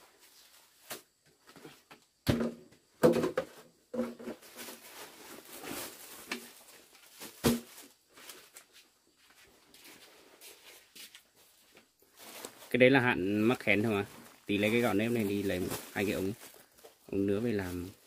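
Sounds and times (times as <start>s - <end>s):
items knocking on table: 2.3s - 4.3s
plastic bag crinkling: 4.6s - 8.6s, 12.1s - 18.0s.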